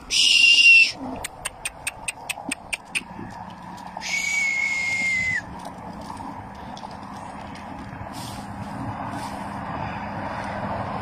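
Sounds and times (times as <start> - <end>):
person whistling: 0.1 - 1.0, 4.0 - 5.4
sharp high clicks: 1.2 - 3.1.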